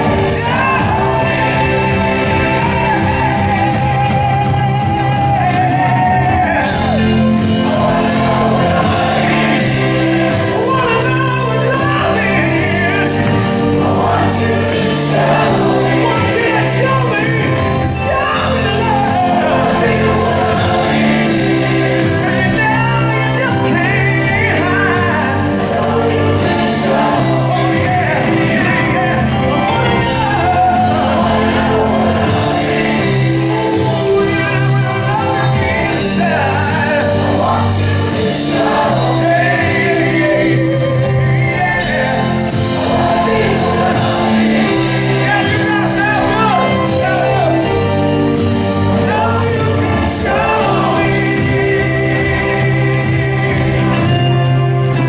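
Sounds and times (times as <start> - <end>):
choir of girls singing: 0.0 - 3.8, 6.6 - 10.7, 12.1 - 17.6, 19.2 - 22.5, 25.3 - 29.3, 30.0 - 34.3, 35.8 - 45.4, 48.9 - 54.4
lead singer singing: 0.0 - 55.0
live rock band playing: 0.0 - 55.0.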